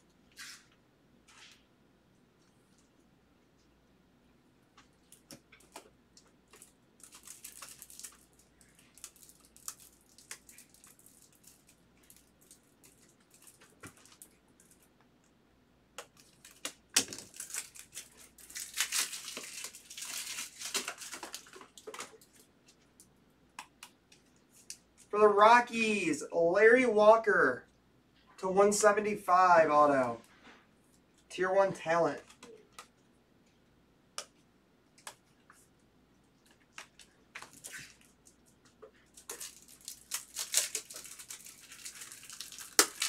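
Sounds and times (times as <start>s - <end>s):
foil wrapper crinkling and tearing: 6.5s - 14.8s, 16.1s - 22.5s, 39.1s - 43.0s.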